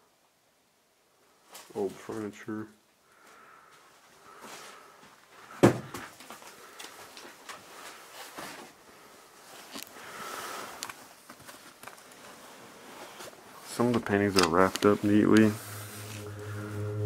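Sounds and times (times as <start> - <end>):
small clicks and handling noises: 9.7 - 10.0, 10.8 - 12.3
cloth sheet rustling: 11.0 - 13.7.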